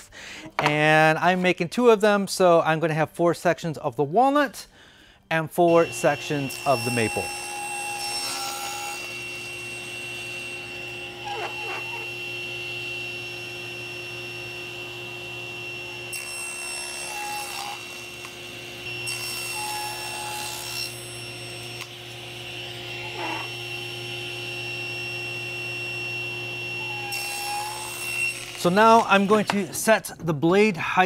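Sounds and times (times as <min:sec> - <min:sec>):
saw blade cutting wood: 0:05.7 - 0:24.9, 0:26.3 - 0:29.9
table saw motor humming: 0:05.7 - 0:29.7.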